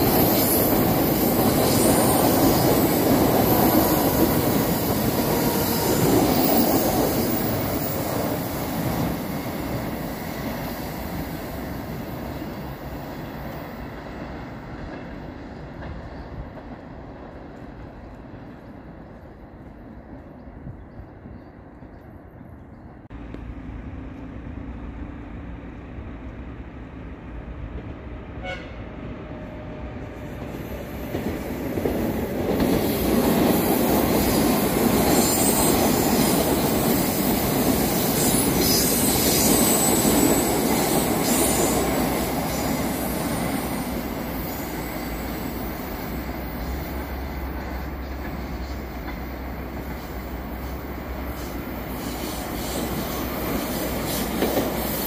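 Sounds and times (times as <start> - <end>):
train wheels rumbling and squealing: 0.0 - 22.0, 27.6 - 55.0.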